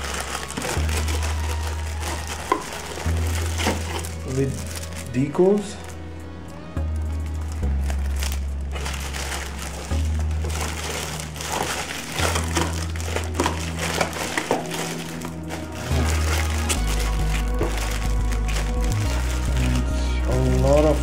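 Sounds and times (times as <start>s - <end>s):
cardboard rustling: 0.0s - 6.0s, 6.9s - 21.0s
background music with low bass: 0.0s - 21.0s
plastic packaging crinkling: 0.0s - 21.0s.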